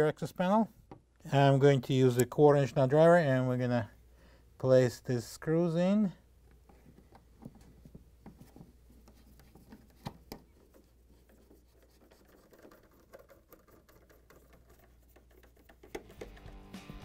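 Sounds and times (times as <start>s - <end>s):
nut driver scraping and clicking: 9.0s - 16.6s.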